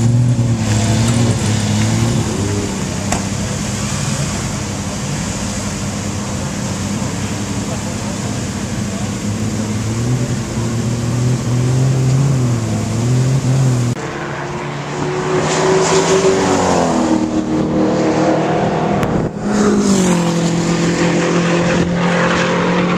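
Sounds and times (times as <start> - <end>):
race car engine running: 0.0 - 15.6
race car accelerating: 0.0 - 22.9.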